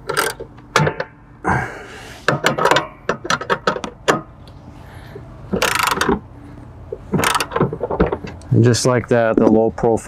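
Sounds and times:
ratchet wrench clicking: 0.0s - 0.5s, 5.6s - 6.2s, 7.2s - 7.6s.

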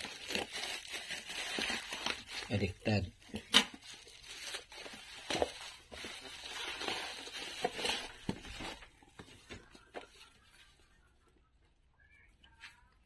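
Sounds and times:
plastic packaging crinkling: 0.0s - 8.9s.

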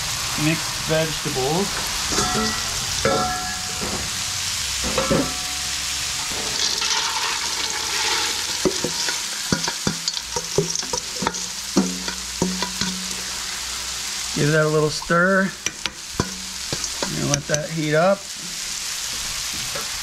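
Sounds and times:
meat sizzling on a griddle: 0.0s - 20.0s
metal ringing: 1.8s - 13.4s, 15.6s - 17.7s
vegetables poured into a pot: 5.6s - 13.3s
spoon scraping and tapping metal bowl: 6.2s - 13.2s, 15.7s - 17.7s.

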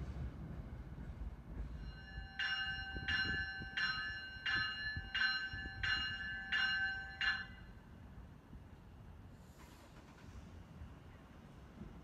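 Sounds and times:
faint low train rumble: 0.0s - 12.0s
railroad warning bell ringing: 1.7s - 7.8s.

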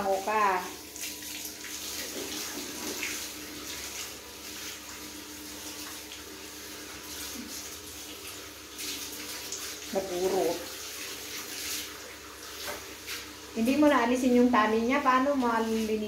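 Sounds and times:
shower head spraying water: 8.8s - 16.0s.

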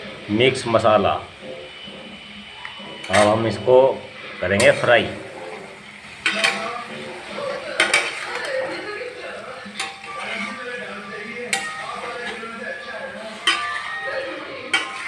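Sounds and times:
spoon scraping in metal pan: 1.7s - 15.0s
spoon clanking against pan: 2.6s - 3.5s, 4.6s - 15.0s.

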